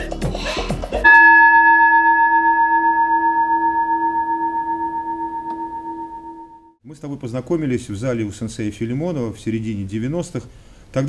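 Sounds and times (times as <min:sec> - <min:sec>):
music with rasping rhythm: 0:00.0 - 0:01.7
singing bowl ringing: 0:01.0 - 0:06.8.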